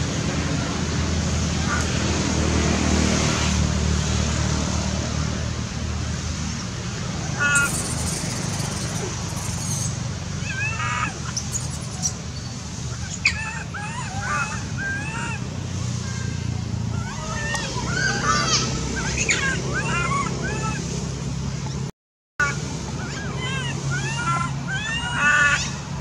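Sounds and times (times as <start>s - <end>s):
baby monkey squealing cries: 7.3s - 15.4s, 16.9s - 20.8s, 23.0s - 25.9s.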